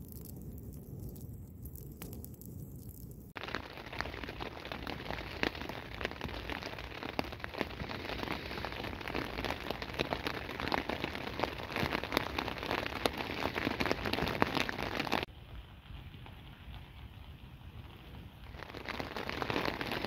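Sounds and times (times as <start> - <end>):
rain falling on a tent: 3.3 - 20.0.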